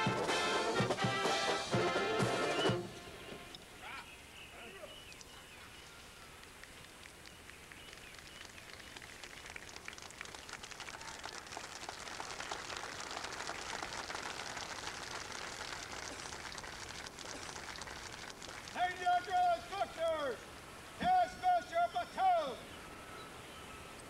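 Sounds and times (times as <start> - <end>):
audience applauding: 6.2 - 19.4.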